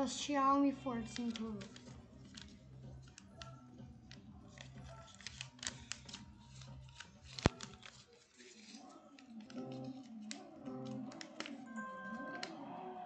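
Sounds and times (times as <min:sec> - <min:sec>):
paper wrapper crinkling: 0:01.1 - 0:03.2, 0:04.1 - 0:11.7.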